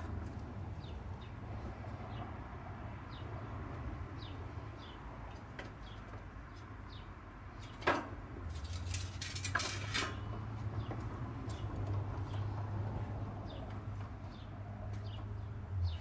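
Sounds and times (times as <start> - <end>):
small birds chirping: 4.2 - 7.8, 10.8 - 12.6, 13.4 - 16.0
reel mower clicks and rattles: 8.5 - 10.2.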